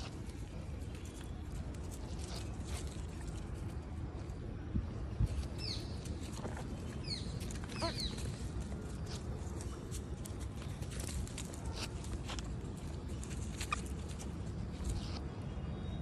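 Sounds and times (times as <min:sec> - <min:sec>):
small animal squeak: 0:07.7 - 0:08.2.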